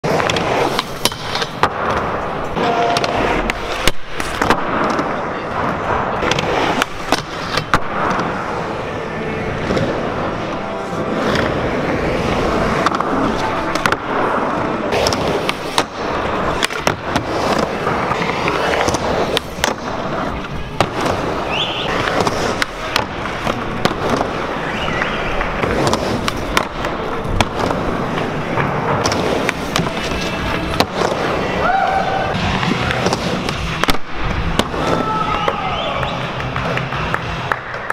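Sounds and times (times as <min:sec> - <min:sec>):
skateboard wheels rolling: 0:00.0 - 0:37.9
skateboard clacking: 0:09.6 - 0:31.6, 0:32.4 - 0:37.9.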